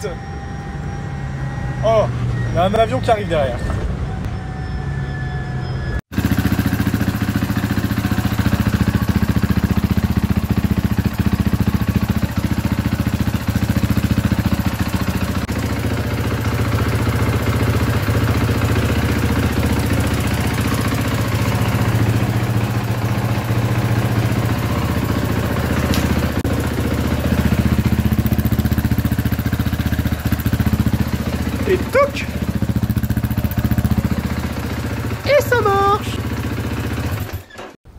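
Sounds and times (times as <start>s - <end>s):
motorcycle engine idling: 6.1s - 37.5s.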